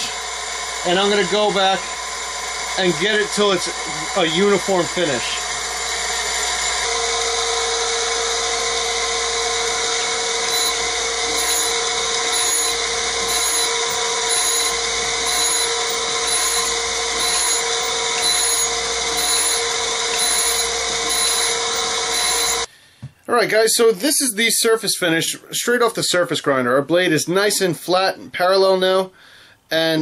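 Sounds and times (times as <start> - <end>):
surface grinder humming: 0.0 - 22.7.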